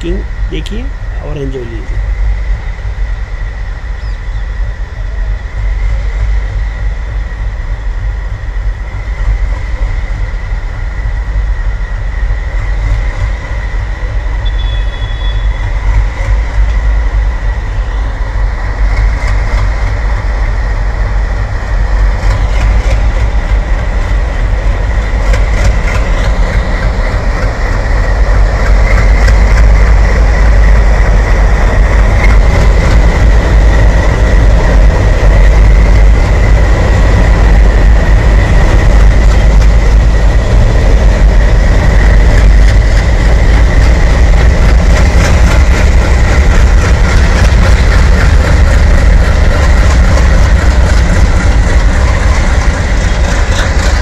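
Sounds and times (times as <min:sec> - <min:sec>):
diesel locomotive engine rumble: 0:00.0 - 0:54.0
train wheels clicking over rail joints: 0:18.6 - 0:54.0.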